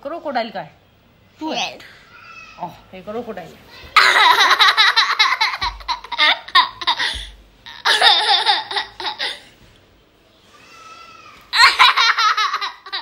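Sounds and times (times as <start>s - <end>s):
small boy laughing: 4.0s - 9.5s, 11.5s - 13.0s.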